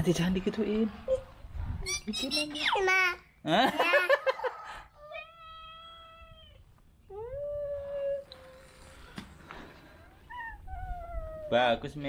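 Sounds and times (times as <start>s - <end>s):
kitten meowing: 10.2s - 11.6s.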